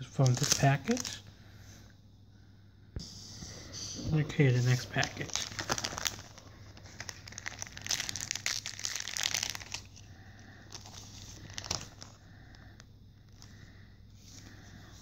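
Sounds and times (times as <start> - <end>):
plastic wrapper crinkling: 0.2 - 1.2, 4.2 - 10.1, 10.7 - 12.2.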